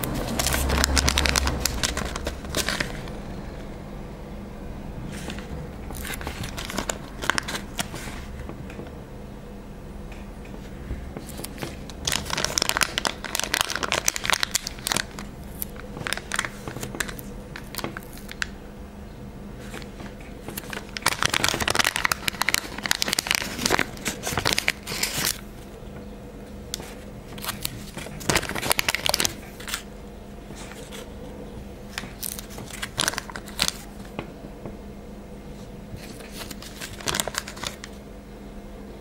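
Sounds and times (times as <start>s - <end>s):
stickers crinkling and rustling: 0.0s - 3.2s, 5.1s - 8.9s, 10.4s - 18.6s, 19.6s - 25.8s, 26.7s - 31.3s, 31.9s - 34.3s, 35.5s - 38.0s.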